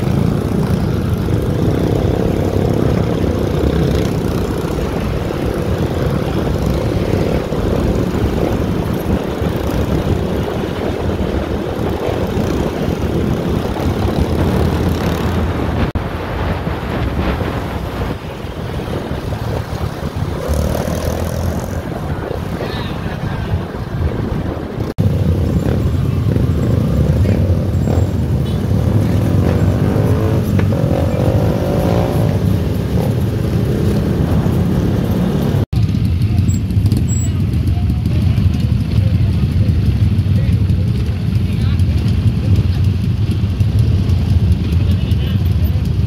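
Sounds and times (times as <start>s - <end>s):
wind noise: 0.0s - 35.7s
road vehicle rumble: 0.0s - 46.0s.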